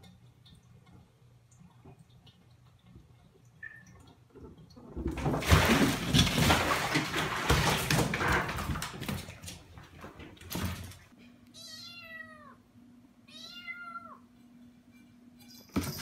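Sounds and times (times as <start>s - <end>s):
cat splashing in water: 5.0s - 11.0s.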